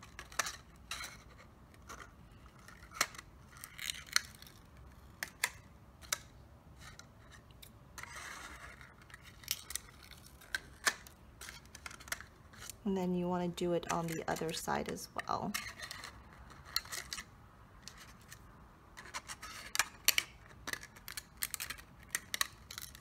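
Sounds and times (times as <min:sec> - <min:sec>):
soft scratching: 0:06.8 - 0:10.8.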